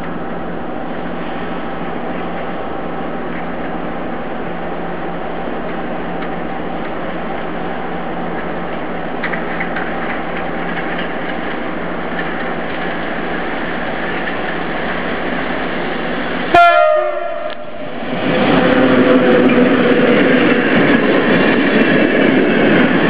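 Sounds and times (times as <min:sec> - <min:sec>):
train rumbling: 0:00.0 - 0:23.0
locomotive horn blast: 0:16.5 - 0:17.8.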